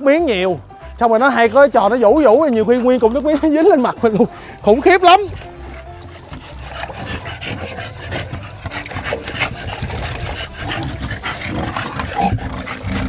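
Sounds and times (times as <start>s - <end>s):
dogs snorting and grunting: 1.3s - 13.0s
hands scrubbing soapy fur: 3.4s - 13.0s.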